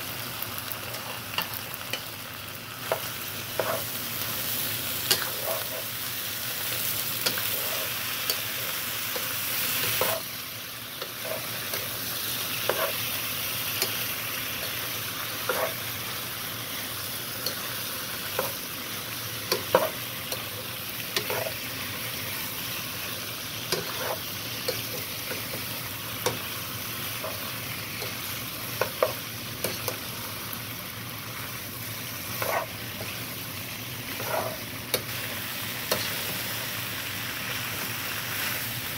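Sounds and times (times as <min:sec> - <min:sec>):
food sizzling in a pan: 0:00.0 - 0:38.9
utensil scraping a pan: 0:11.0 - 0:11.7, 0:12.6 - 0:13.1, 0:15.4 - 0:15.8, 0:23.7 - 0:24.3, 0:32.3 - 0:32.8, 0:34.1 - 0:34.7.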